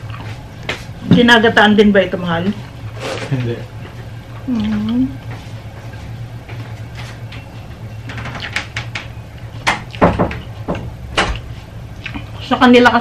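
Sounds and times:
steady low hum: 0.0s - 13.0s
eating clicks and smacks: 8.1s - 10.5s.

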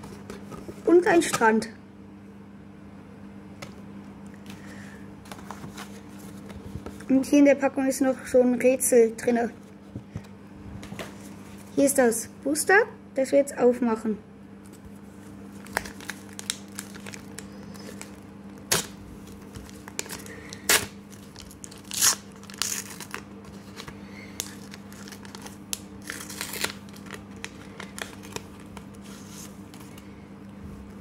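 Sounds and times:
faint steady hum: 0.0s - 31.0s
card pack wrapper tearing: 15.6s - 28.9s.

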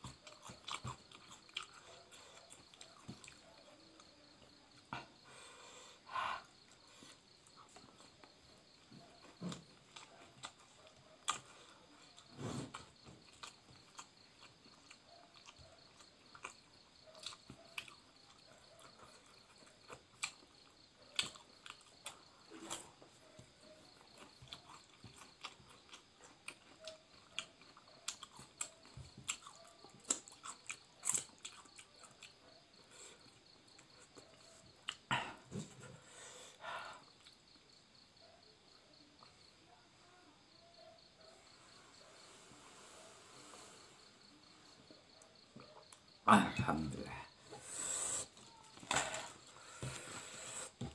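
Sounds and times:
chewing with wet smacks: 0.0s - 4.2s, 9.6s - 35.1s.

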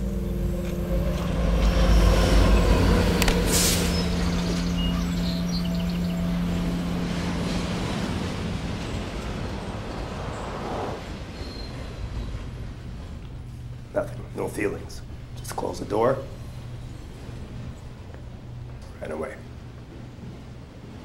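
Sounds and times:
heavy vehicle passing: 0.0s - 14.0s.

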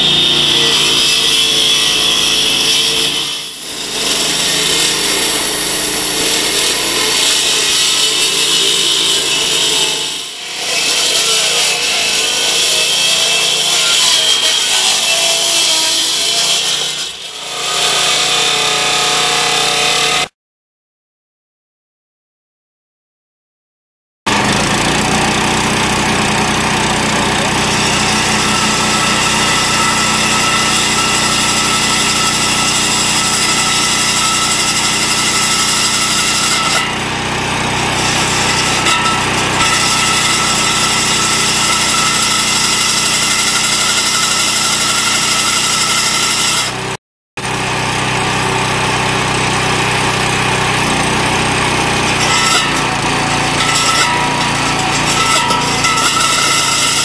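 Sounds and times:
core drill cutting concrete: 0.0s - 20.3s, 24.3s - 57.0s.

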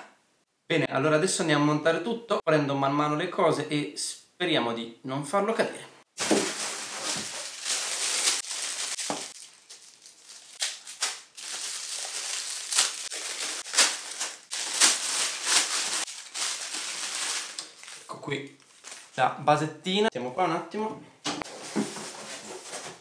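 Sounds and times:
plastic bag crinkling: 6.2s - 19.2s.

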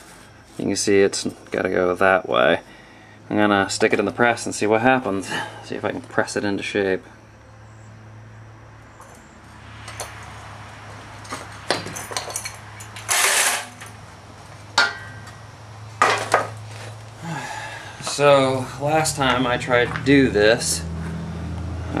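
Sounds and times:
metal clanking and clinking: 9.0s - 10.3s, 11.2s - 14.0s, 14.8s - 15.4s.

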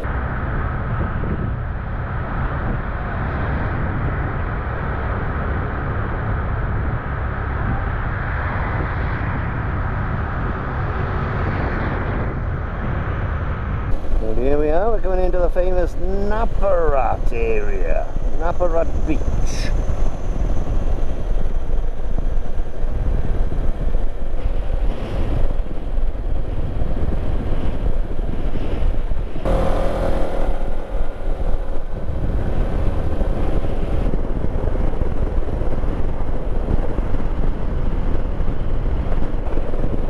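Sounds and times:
road vehicle running noise: 0.0s - 40.0s
wind rumble on microphone: 0.0s - 40.0s
engine note: 13.9s - 18.8s, 29.3s - 36.6s.

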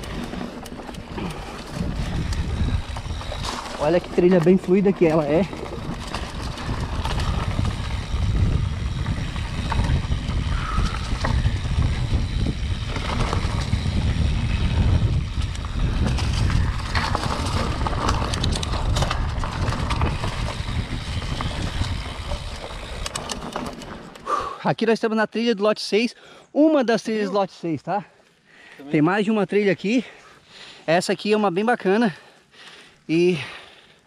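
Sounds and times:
bike rattles and clicks: 0.0s - 24.6s
bike tyres rumbling: 0.0s - 24.6s.

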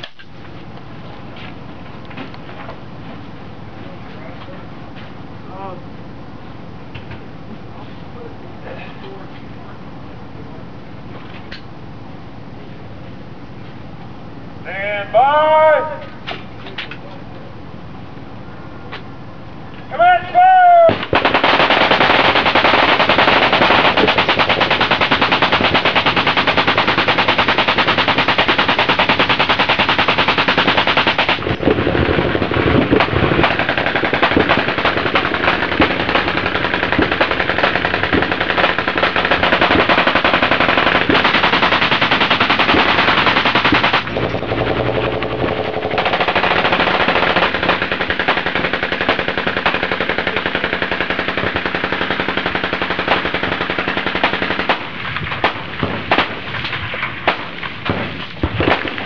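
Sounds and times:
machine guns firing full-auto: 20.8s - 59.0s
close assault rifle firing: 20.9s - 56.6s, 57.2s - 59.0s.

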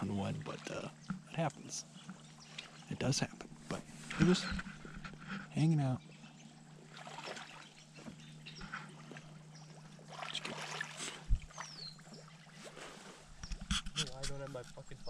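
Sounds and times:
person wading through shallow water: 0.0s - 1.2s, 1.8s - 14.3s
small water splashes: 0.0s - 2.9s, 6.0s - 13.0s
water sloshing and trickling: 0.0s - 15.0s.

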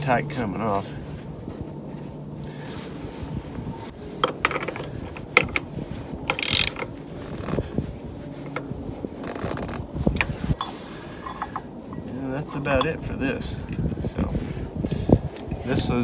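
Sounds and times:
ratchet wrench clicking: 6.3s - 6.8s.

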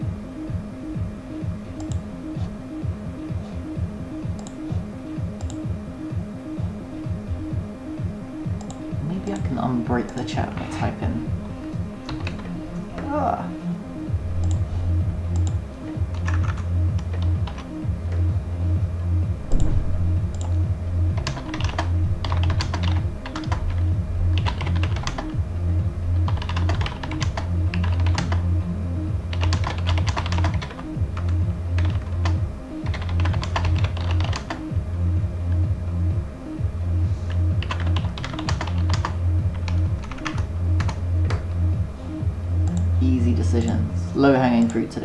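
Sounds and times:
background music with bass beat: 0.0s - 44.6s
typing on computer keyboard: 12.1s - 12.5s, 21.2s - 23.6s, 26.3s - 28.4s, 29.3s - 30.8s, 31.8s - 34.6s, 37.6s - 41.4s.

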